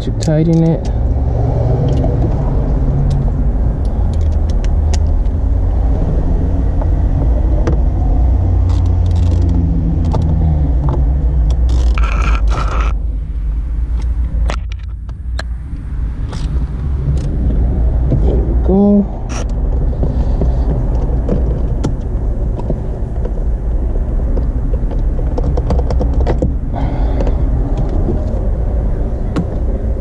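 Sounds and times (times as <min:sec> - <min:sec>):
low steady rumble: 0:00.0 - 0:30.0
ratchet clicking: 0:08.6 - 0:10.3.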